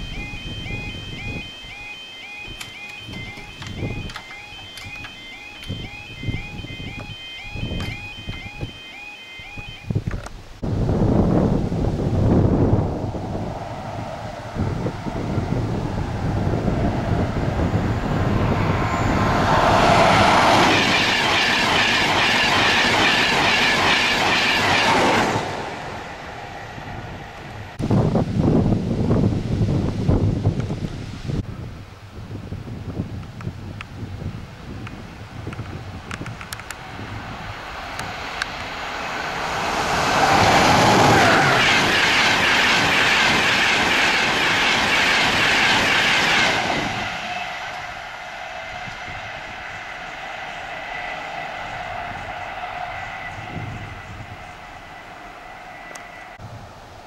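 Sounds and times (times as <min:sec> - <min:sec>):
train passing at speed: 0:10.8 - 0:30.1, 0:34.2 - 0:57.0.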